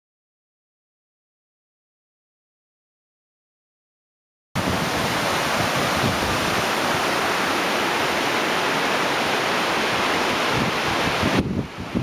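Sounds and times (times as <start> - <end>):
waterfall rushing: 4.6 - 12.0.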